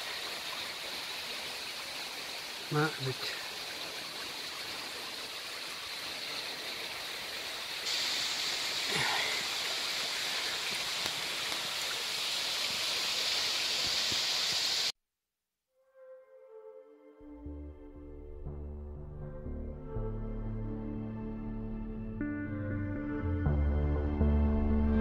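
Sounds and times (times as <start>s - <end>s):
stream and waterfall rushing: 0.0s - 14.9s
soft ambient music: 15.9s - 25.0s.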